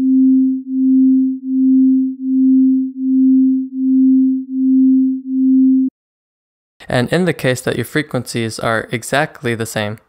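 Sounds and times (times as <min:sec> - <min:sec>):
beating pure tone: 0:00.0 - 0:05.9.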